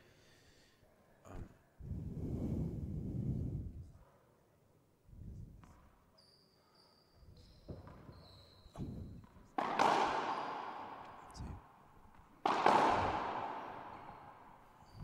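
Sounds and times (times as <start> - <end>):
sneakers squeaking: 5.7 - 15.0
ball bouncing on hardwood floor: 7.6 - 11.4, 12.1 - 15.0
loud echoing ball hit: 9.6 - 11.3, 12.4 - 14.8.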